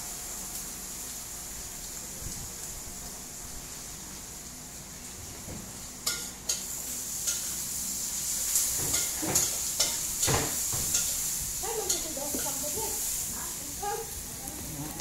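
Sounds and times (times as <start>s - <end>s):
food sizzling in hot oil: 0.0s - 15.0s
spatula scraping and tapping pan: 6.0s - 7.6s, 8.6s - 12.8s.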